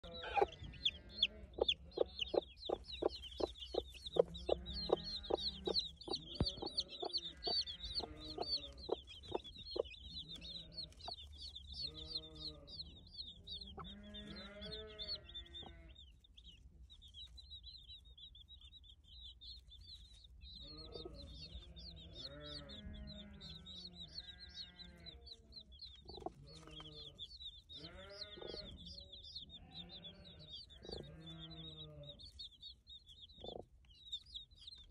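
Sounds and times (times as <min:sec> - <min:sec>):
hen sharp clucks: 0:00.0 - 0:12.6
chicks peeping: 0:00.0 - 0:34.9.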